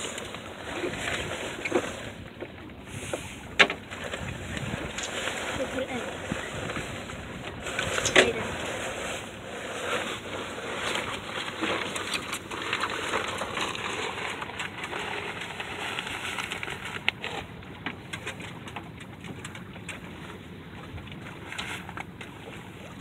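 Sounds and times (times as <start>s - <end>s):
rustling and crackling: 3.7s - 19.6s.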